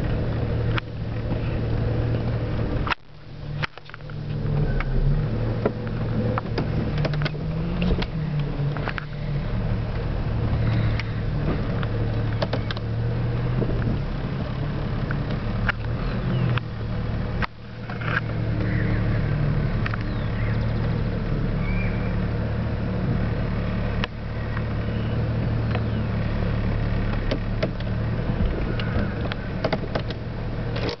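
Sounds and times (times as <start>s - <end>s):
car engine humming: 0.0s - 31.0s
clicks: 19.8s - 21.0s.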